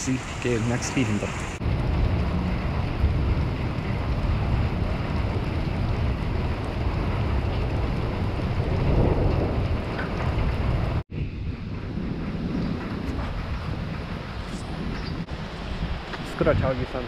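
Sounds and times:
heavy rain hiss: 0.0 - 9.9
wind buffeting microphone: 0.0 - 17.0.

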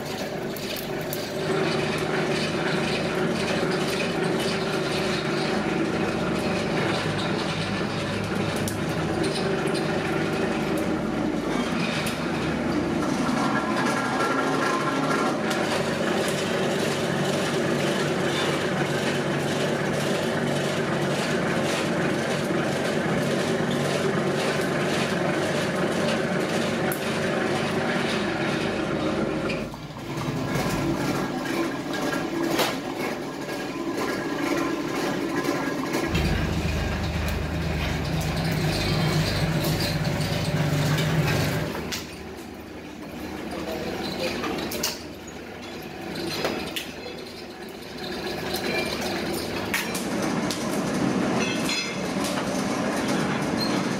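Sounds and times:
rubber mill mechanical clatter: 0.0 - 53.9
sharp machine knock: 36.1 - 41.1.

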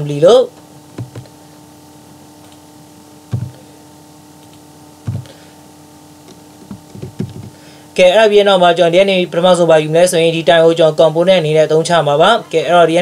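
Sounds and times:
steady low hum: 0.0 - 13.0
computer keyboard keystrokes: 1.0 - 1.3, 3.3 - 3.6, 4.4 - 5.3, 6.6 - 7.6.

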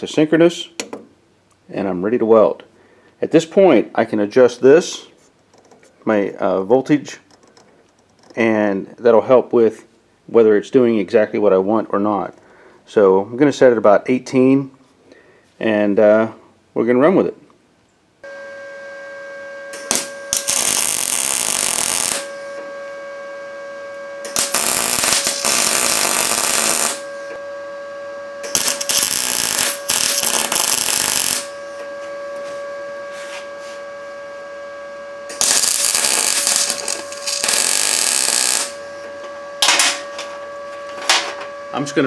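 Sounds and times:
steady high whine: 0.0 - 13.8, 18.2 - 42.0
welding arc crackle: 19.7 - 22.6, 24.2 - 27.4, 28.4 - 31.8, 35.3 - 39.0.

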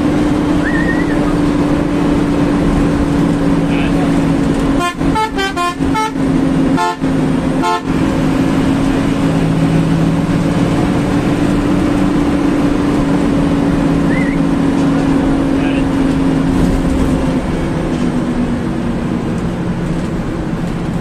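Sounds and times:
bus engine and road hum: 0.0 - 21.0
bus horn blasts: 4.6 - 8.2.

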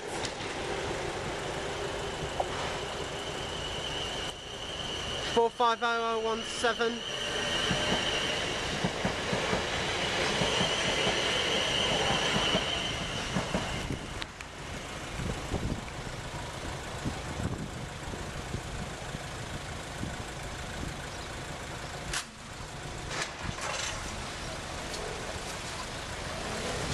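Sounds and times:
train wheels rumbling on rail: 0.0 - 26.9
steady high tone: 0.9 - 8.8.

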